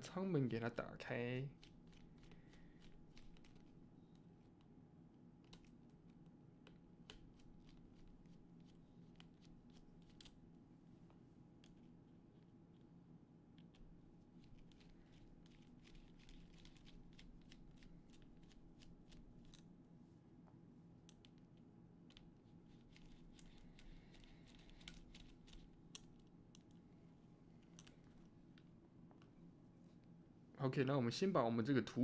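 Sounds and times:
low room hum: 0:00.0 - 0:32.0
clicks and rustles of small parts: 0:01.5 - 0:04.7, 0:05.4 - 0:10.4, 0:13.6 - 0:19.7, 0:21.0 - 0:26.9, 0:27.5 - 0:29.4.

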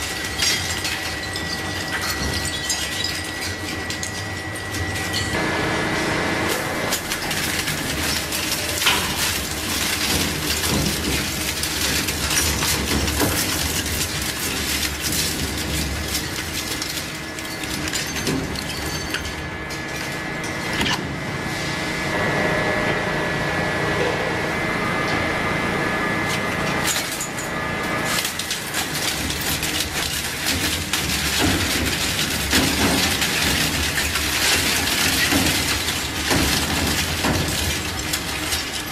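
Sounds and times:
shredder crunching metal and plastic: 0:00.0 - 0:05.4, 0:06.5 - 0:21.2, 0:26.3 - 0:38.9
machine high whine: 0:19.6 - 0:28.3.

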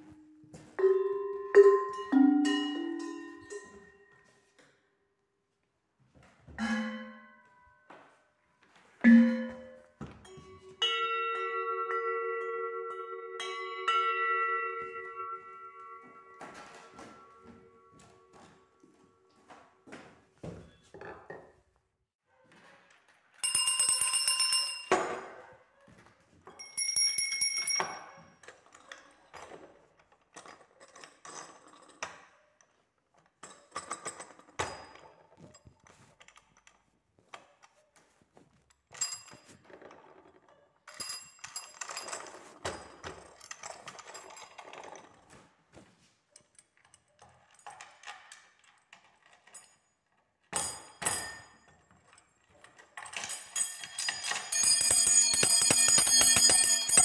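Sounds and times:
bell handling knocks: 0:00.6 - 0:04.1, 0:06.5 - 0:07.4, 0:26.5 - 0:28.2, 0:53.1 - 0:57.0
metal hand bells ringing: 0:00.8 - 0:04.1, 0:23.4 - 0:24.9, 0:26.6 - 0:28.2, 0:53.1 - 0:57.0.

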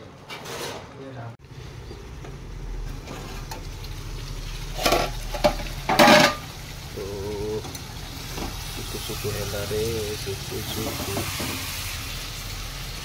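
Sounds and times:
curry sizzling in a pan: 0:01.4 - 0:13.0
metal lid clattering: 0:04.7 - 0:06.5.

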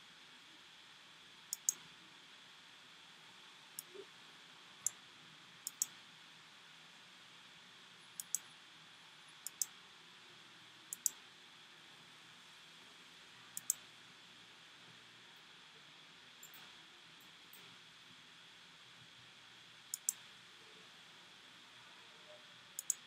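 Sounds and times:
faint steady hiss: 0:00.0 - 0:23.0
computer mouse clicks: 0:01.5 - 0:01.8, 0:03.8 - 0:04.0, 0:05.6 - 0:06.0, 0:08.2 - 0:08.5, 0:09.4 - 0:09.8, 0:10.9 - 0:11.2, 0:13.6 - 0:13.8, 0:16.4 - 0:16.7, 0:19.9 - 0:20.2, 0:22.8 - 0:23.0.

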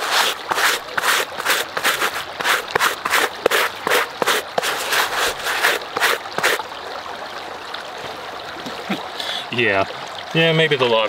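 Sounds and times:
scrubbing wet jeans: 0:00.0 - 0:06.6
creek running: 0:00.0 - 0:11.0.

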